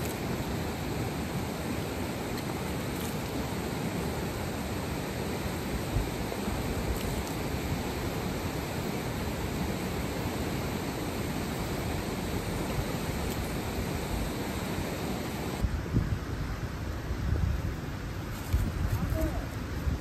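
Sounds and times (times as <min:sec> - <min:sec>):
river rushing: 0:00.0 - 0:15.8.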